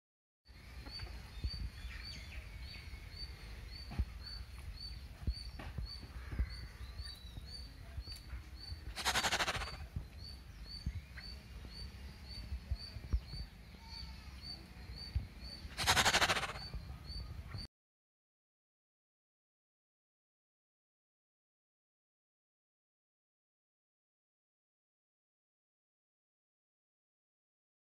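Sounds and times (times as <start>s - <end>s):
birds chirping: 0.5s - 17.7s
loud harsh dinosaur shrieks: 9.0s - 9.8s, 15.8s - 16.6s.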